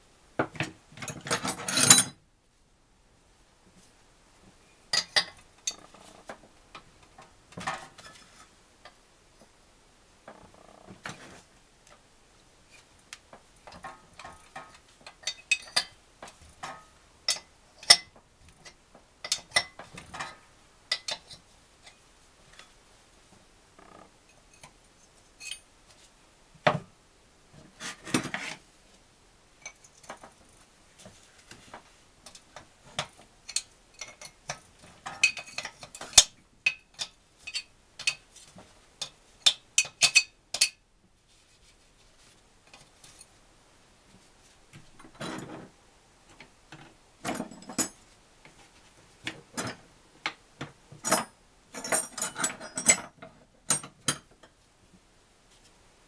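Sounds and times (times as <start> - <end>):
spanner clicking on metal nuts: 39.0 - 40.8.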